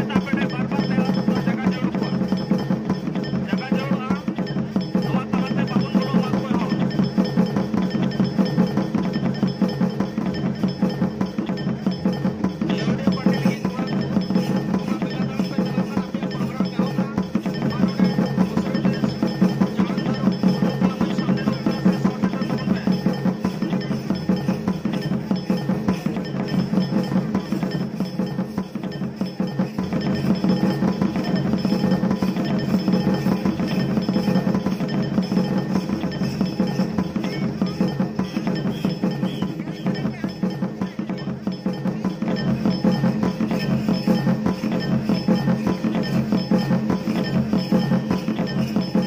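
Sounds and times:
fast folk drumming: 0.0 - 49.0.

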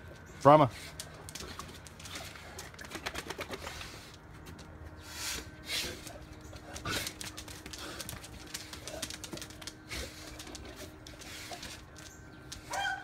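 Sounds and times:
claws and paws on concrete: 0.0 - 13.0
dogs breathing: 0.7 - 12.8.

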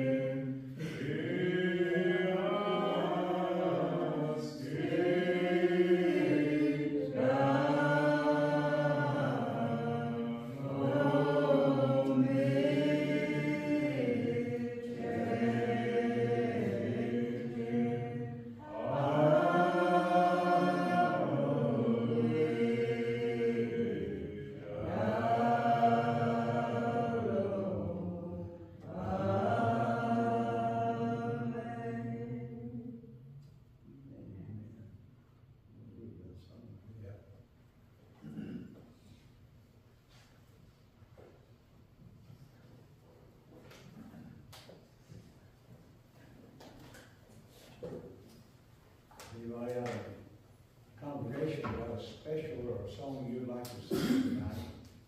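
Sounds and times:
group singing a slow hymn: 0.0 - 34.1, 43.6 - 55.0.

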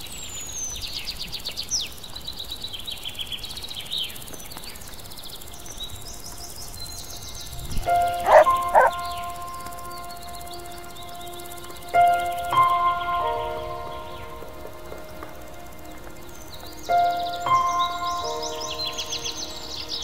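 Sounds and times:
small birds trilling: 0.0 - 20.0
dog barking: 8.2 - 9.0.

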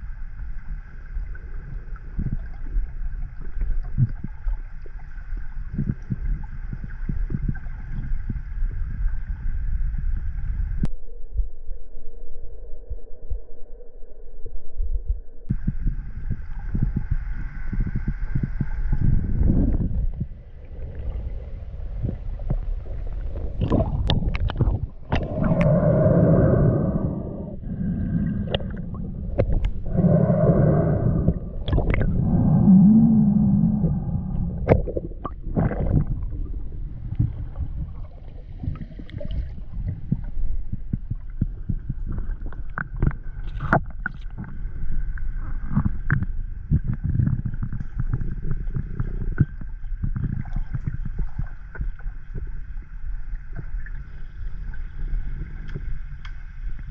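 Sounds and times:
water gurgling: 15.6 - 56.9.

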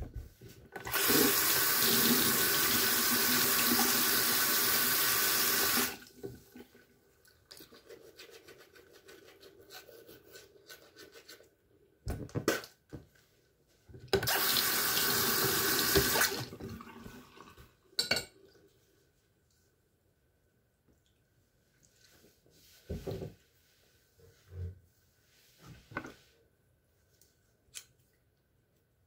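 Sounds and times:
tap running into sink: 15.4 - 16.3.

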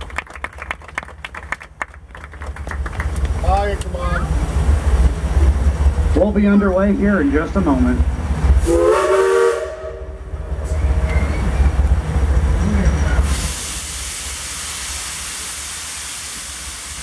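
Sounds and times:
low rumble: 1.1 - 8.9
steam hissing: 13.1 - 17.0.

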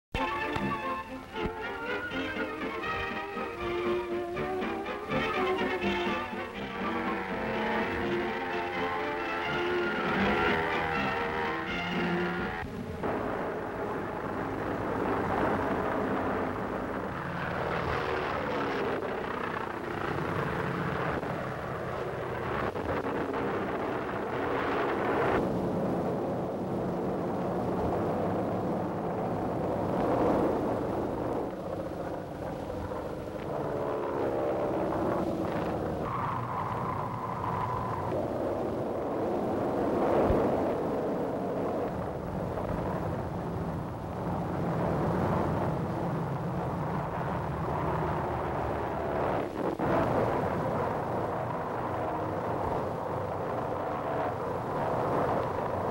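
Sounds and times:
biplane engines droning overhead: 0.2 - 55.9.

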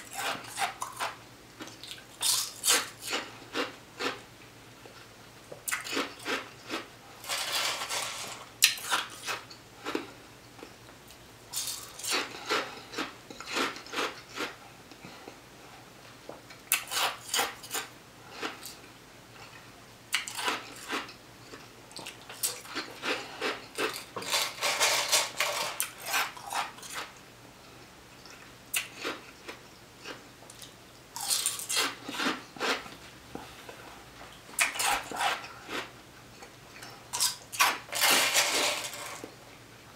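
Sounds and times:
ice being chewed: 0.0 - 4.2, 11.5 - 14.6, 19.4 - 27.1, 28.2 - 32.9, 34.6 - 39.3.

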